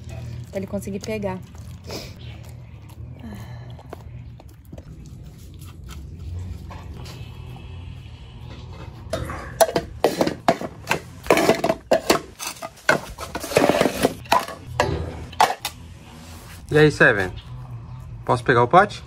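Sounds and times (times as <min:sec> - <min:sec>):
bowls clattering on tiled floor: 0:09.1 - 0:15.8.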